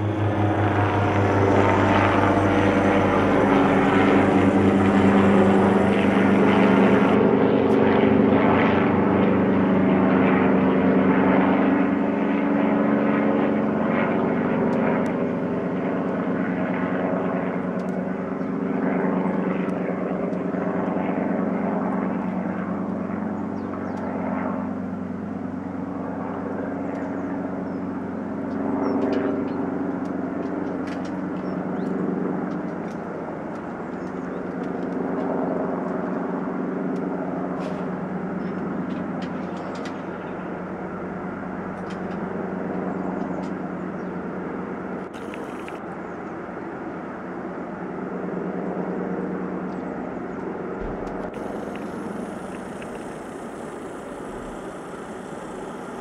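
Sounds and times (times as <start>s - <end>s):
helicopter flying overhead: 0.0s - 56.0s.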